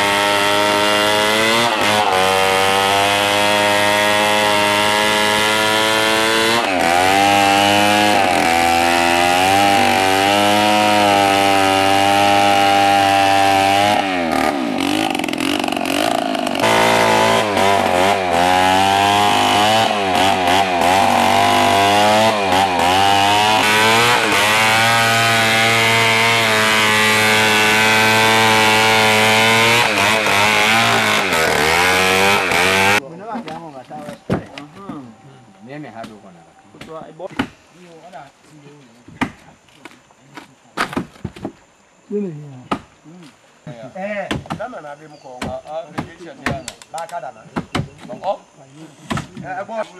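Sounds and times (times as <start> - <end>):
chainsaw cutting log: 0.0 - 33.0.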